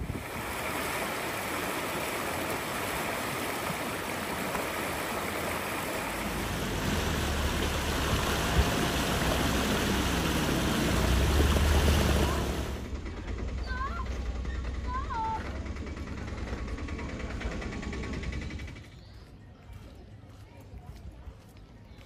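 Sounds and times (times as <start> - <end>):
steady rushing noise: 0.0 - 13.6.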